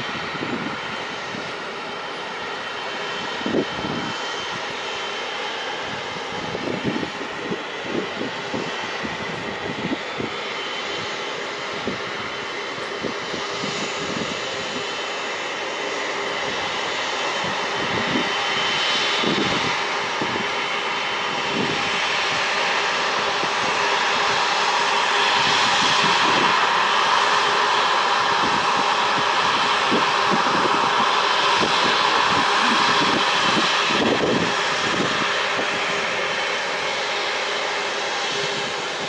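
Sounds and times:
jet engines whining: 0.0s - 39.0s.

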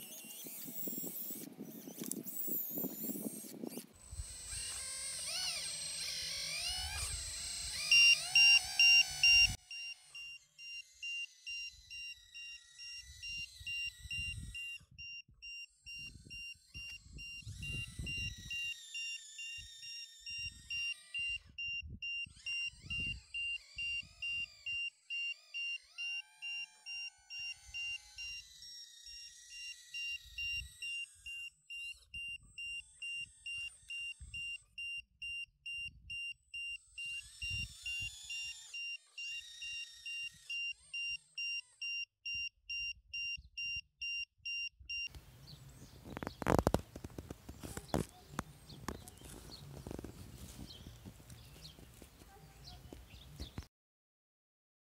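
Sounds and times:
excavator motors whining: 0.0s - 42.8s, 45.0s - 53.7s
high electronic beep: 7.9s - 45.1s.

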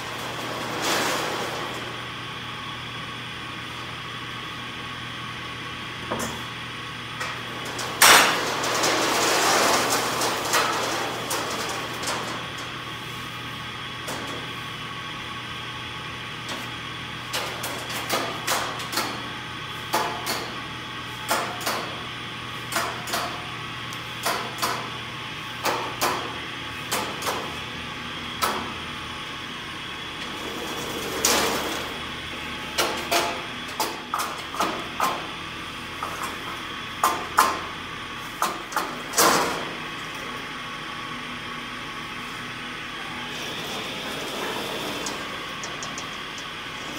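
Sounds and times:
rushing scrape: 0.0s - 1.9s, 8.2s - 11.9s.

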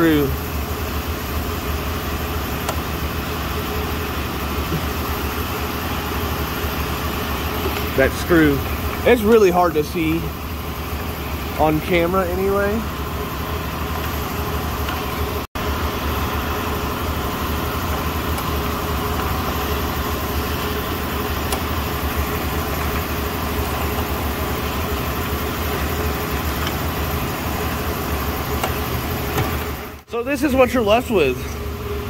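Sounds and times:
workshop machinery drone: 0.0s - 32.0s.

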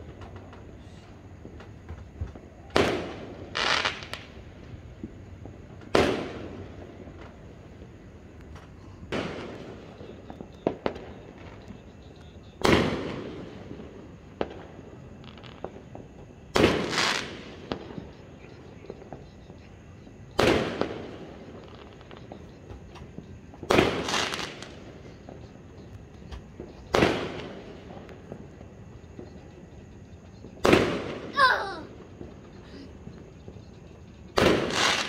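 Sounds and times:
small firework pops: 0.0s - 35.0s
fireworks shells bursting: 2.7s - 4.4s, 20.4s - 28.4s, 34.3s - 35.0s.

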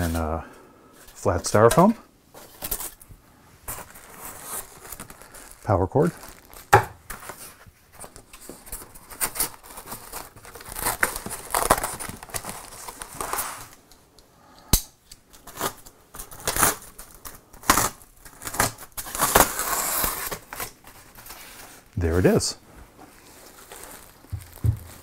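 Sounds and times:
plastic crinkling: 3.7s - 13.9s, 15.3s - 25.0s.

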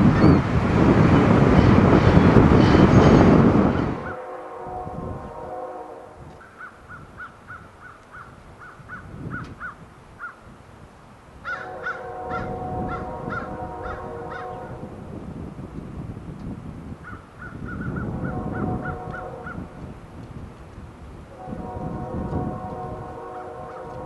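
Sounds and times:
train horn blasts: 1.0s - 6.4s, 11.5s - 15.0s, 18.0s - 19.8s, 21.3s - 24.0s.

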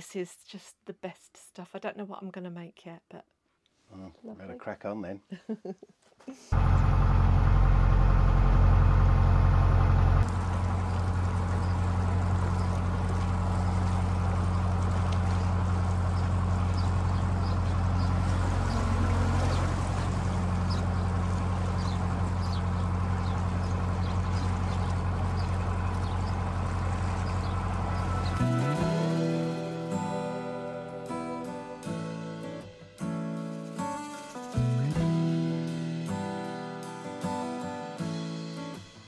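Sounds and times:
diesel boat engine running: 6.6s - 32.4s.

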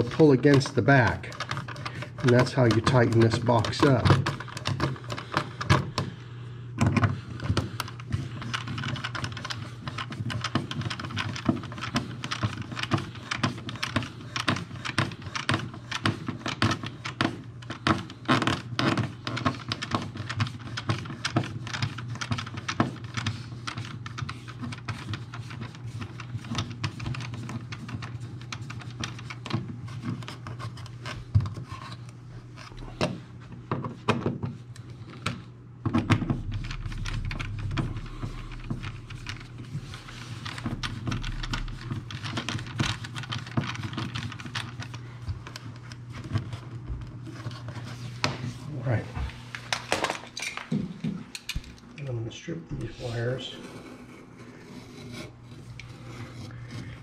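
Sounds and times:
handling of cable and tools: 0.0s - 6.2s
steady low hum: 0.0s - 57.0s.

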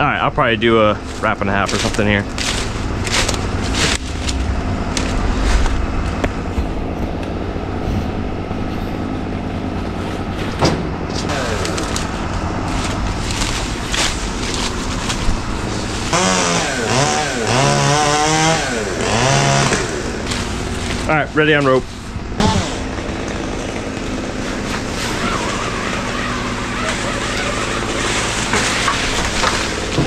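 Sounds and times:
engine running: 0.0s - 30.0s
chainsaw revving: 1.0s - 5.4s, 11.2s - 21.6s, 22.4s - 30.0s.

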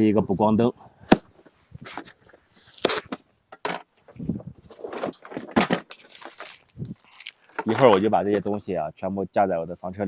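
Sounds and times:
plastic strap scraping cardboard: 1.4s - 3.2s.

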